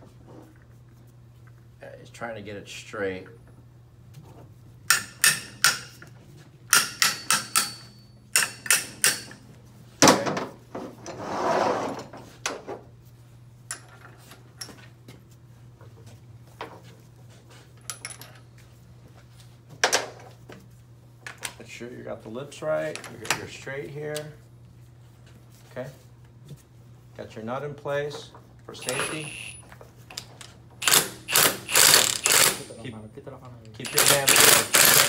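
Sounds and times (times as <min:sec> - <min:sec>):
metal tools clanking on workbench: 0:28.8 - 0:29.7.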